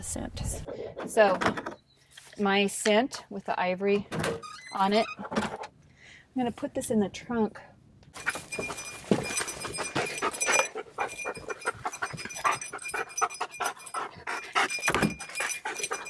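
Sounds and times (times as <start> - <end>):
dog panting and sniffing: 8.2 - 16.0.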